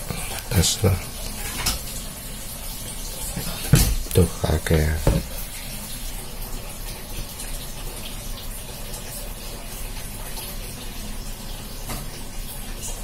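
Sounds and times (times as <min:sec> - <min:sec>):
faint knock: 0:03.7 - 0:04.1, 0:05.0 - 0:05.4.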